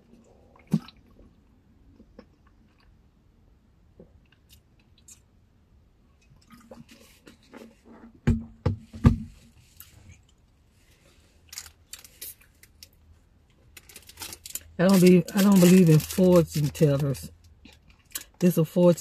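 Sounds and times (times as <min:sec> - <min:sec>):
chewing and mouth noises: 0:00.0 - 0:03.2
crackly rustle: 0:09.6 - 0:18.4.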